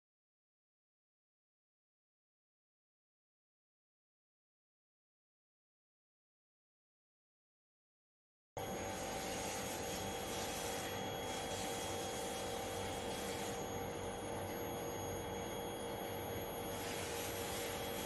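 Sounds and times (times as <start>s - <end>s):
machinery hum with hiss: 8.6s - 18.0s.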